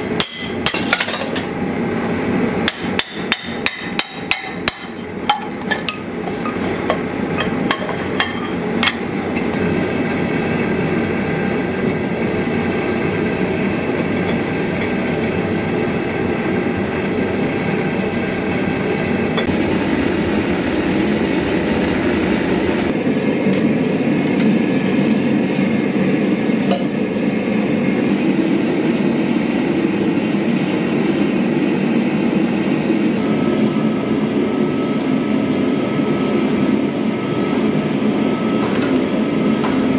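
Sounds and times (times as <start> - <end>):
loud machine noise: 0.0 - 39.9
hammer striking metal on anvil: 0.2 - 1.2, 2.6 - 6.1.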